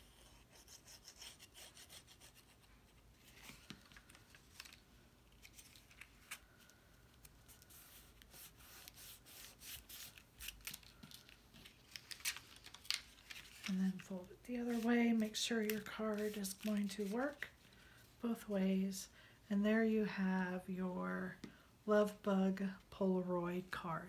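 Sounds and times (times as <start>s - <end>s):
hands rubbing cardstock: 7.5s - 10.6s.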